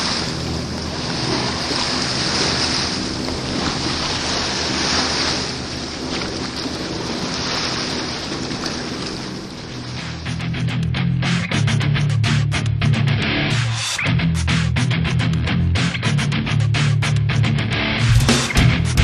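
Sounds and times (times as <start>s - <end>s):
wind: 0.0s - 11.6s
sea: 0.0s - 19.0s.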